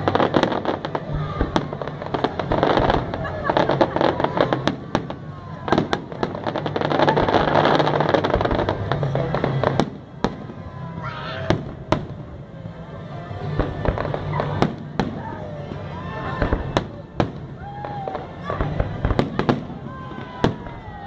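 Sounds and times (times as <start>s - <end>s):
firework bangs: 0.0s - 12.4s, 13.4s - 21.0s
firework crackle: 0.0s - 21.0s.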